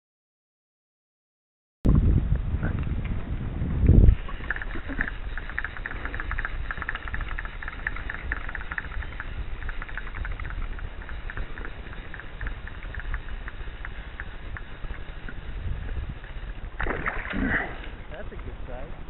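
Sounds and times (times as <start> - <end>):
wind rumble on microphone: 1.9 - 19.0
fishing reel ratchet ticking: 4.4 - 16.8.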